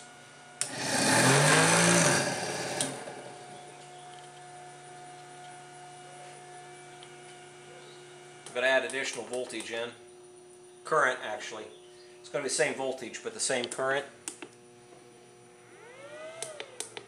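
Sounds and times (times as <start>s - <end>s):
steady hum: 0.0s - 16.8s
electric motor whirring: 0.6s - 5.0s, 15.7s - 17.0s.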